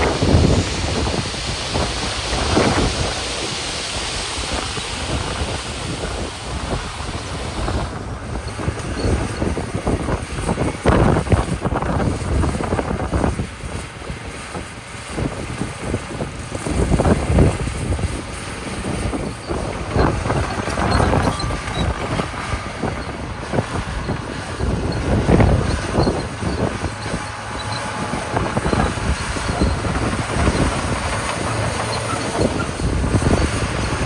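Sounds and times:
bulldozer diesel engine: 0:00.0 - 0:34.0
dump truck unloading gravel: 0:00.0 - 0:34.0
wind on microphone: 0:00.0 - 0:34.0.

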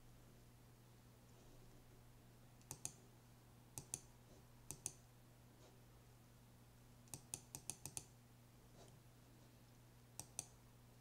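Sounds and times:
faint steady hum: 0:00.0 - 0:11.0
computer mouse clicks: 0:02.6 - 0:03.0, 0:03.8 - 0:04.1, 0:04.7 - 0:05.0, 0:07.1 - 0:08.1, 0:10.2 - 0:10.6.

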